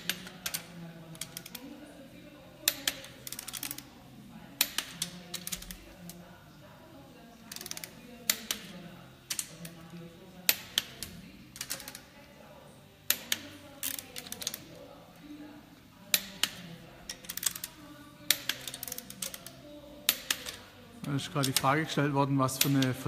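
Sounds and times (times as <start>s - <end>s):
torque wrench clicking: 7.5s - 8.7s, 16.1s - 20.7s.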